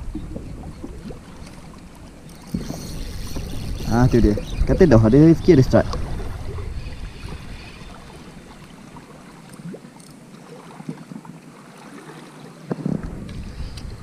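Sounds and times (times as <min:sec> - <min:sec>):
wind on microphone: 0:00.0 - 0:01.6, 0:02.4 - 0:08.7, 0:12.7 - 0:14.0
sea lapping against rocks: 0:05.6 - 0:14.0.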